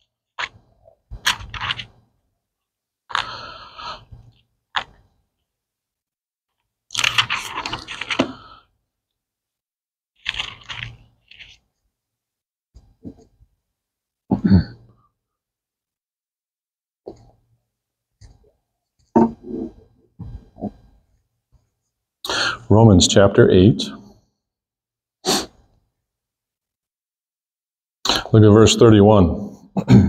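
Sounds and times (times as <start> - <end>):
book pages rustling: 1.2 - 2.0, 6.9 - 8.5, 10.2 - 11.8.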